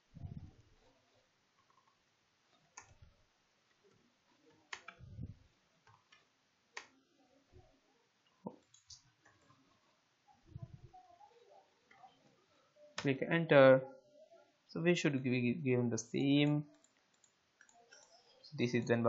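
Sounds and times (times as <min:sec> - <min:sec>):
keyboard and mouse clicks: 0:02.8 - 0:03.1, 0:04.7 - 0:05.2, 0:08.4 - 0:09.6, 0:16.7 - 0:18.2.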